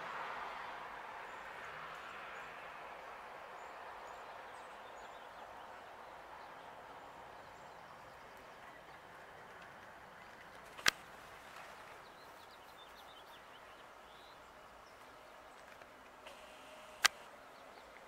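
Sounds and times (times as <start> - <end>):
outdoor background hiss: 0.0 - 18.0
sharp click: 16.3 - 17.3.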